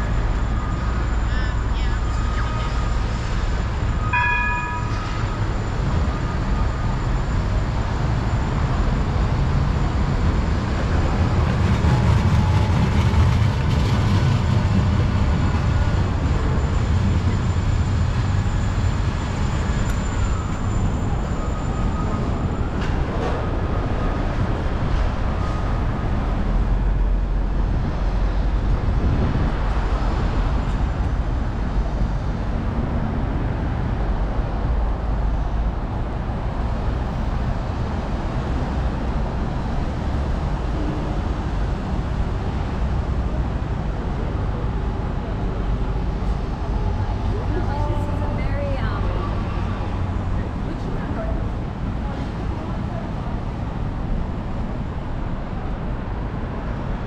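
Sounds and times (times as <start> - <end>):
tram and street traffic rumble: 0.0 - 57.0
short high tones: 4.0 - 5.4.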